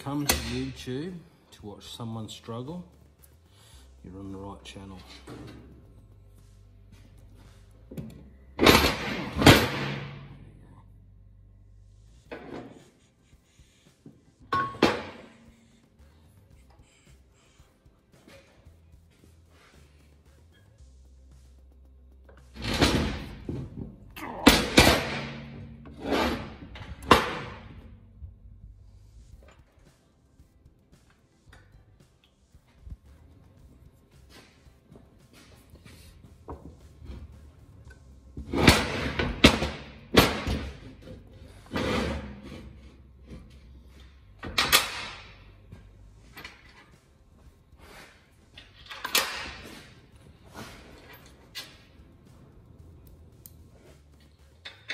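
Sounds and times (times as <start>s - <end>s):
vise scraping on metal bench: 25.0s - 27.7s, 40.2s - 43.6s
vise scraping on steel: 41.0s - 43.6s.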